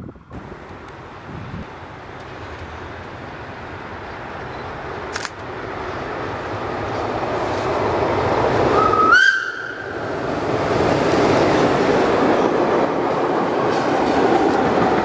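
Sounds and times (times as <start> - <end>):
train whistle rising in pitch: 8.7 - 10.0.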